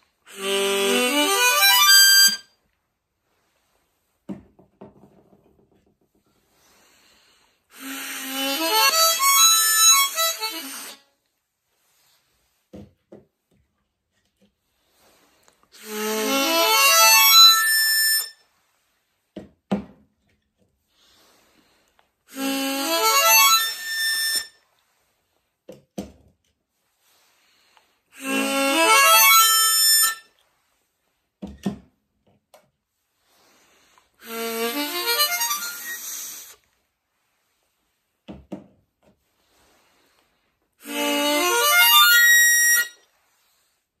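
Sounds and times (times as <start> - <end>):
harmonica rising runs: 0.3 - 2.5, 7.7 - 11.0, 15.8 - 18.3, 22.3 - 24.5, 28.2 - 30.2, 34.2 - 36.6, 40.8 - 43.0.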